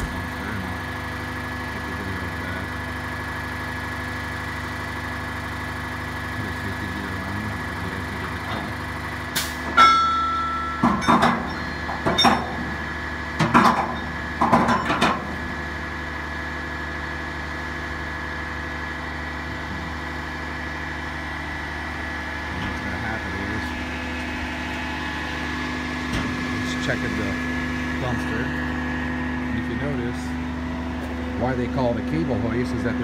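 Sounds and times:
diesel truck engine idling: 0.0 - 33.0
metal knocks and clanks: 9.7 - 12.8, 13.4 - 15.4
brief metallic ringing: 9.8 - 12.5.

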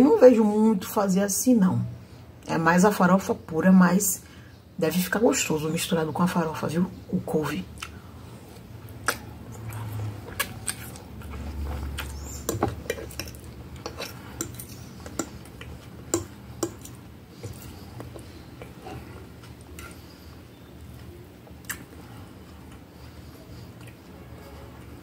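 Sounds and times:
person chewing: 7.8 - 24.2
wet mouth clicks: 8.9 - 11.1
metal fork scraping on a plate: 12.3 - 15.4, 18.8 - 20.0.

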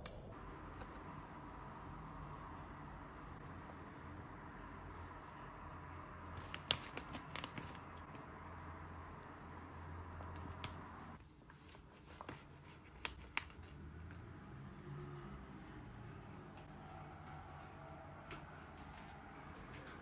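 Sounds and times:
plastic pouch crinkling: 6.4 - 8.0.

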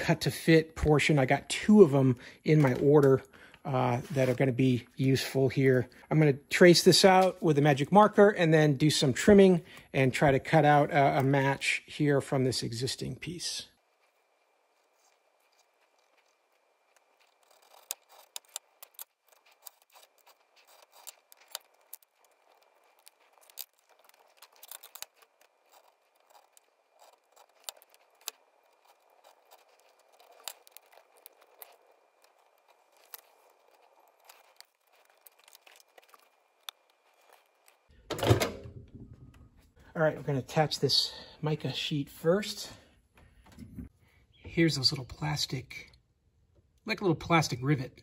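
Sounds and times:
knife scratching card: 15.6 - 37.8.

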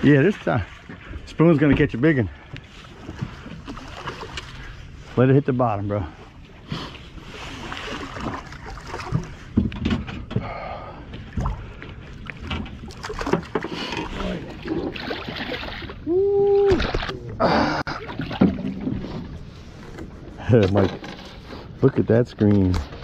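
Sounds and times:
water splashing against boat hull: 7.2 - 10.4, 11.1 - 19.8
knocks and scrapes of fishing rod: 18.4 - 21.8.

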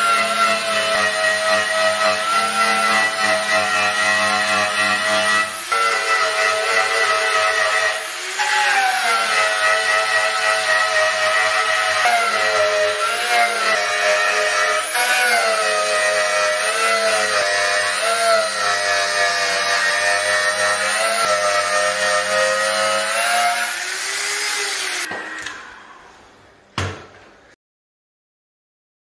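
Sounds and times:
eraser wheel motor whine: 23.4 - 26.0.

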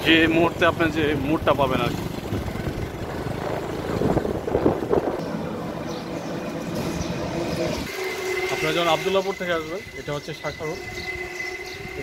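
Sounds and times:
motorcycle engine hum: 0.0 - 12.0
wind buffeting microphone: 1.4 - 7.9, 10.8 - 12.0.

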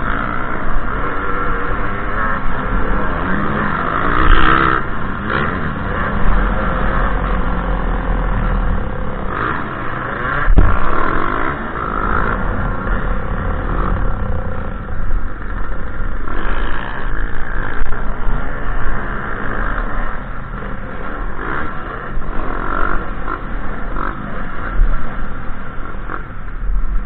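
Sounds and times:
dirt bike engine revving: 0.0 - 26.6
other dirt bikes: 0.0 - 27.0
loud knocks: 10.5 - 11.1.

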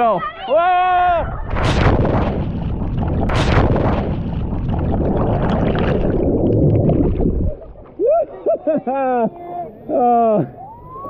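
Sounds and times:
muffled underwater rumbling: 1.2 - 8.0
splash into water: 1.5 - 7.9.

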